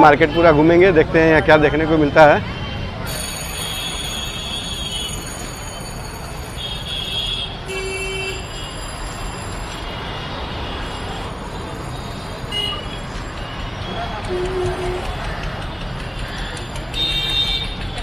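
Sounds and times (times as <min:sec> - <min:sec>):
passing street traffic: 0:00.0 - 0:18.0
car horn toot: 0:03.1 - 0:05.4, 0:12.5 - 0:15.2, 0:16.9 - 0:17.8.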